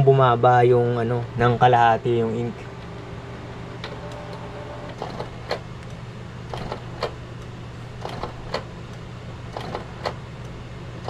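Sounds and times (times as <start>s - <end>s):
printer low hum: 0.0s - 11.0s
printer mechanism clicking: 3.8s - 8.7s, 9.5s - 10.2s.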